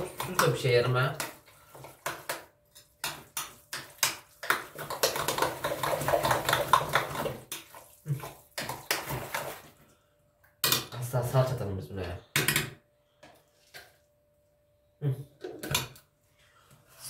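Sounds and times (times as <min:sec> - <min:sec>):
wet squelches of hand mixing meat: 0:00.0 - 0:10.0.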